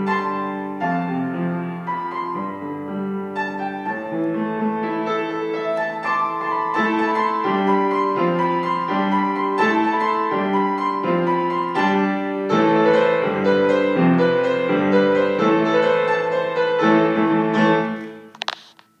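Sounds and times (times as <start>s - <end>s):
piano playing chords: 0.0s - 18.4s.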